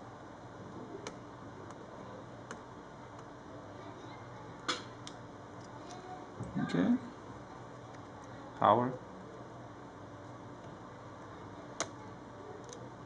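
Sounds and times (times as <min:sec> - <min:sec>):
faint room hum: 0:00.0 - 0:13.0.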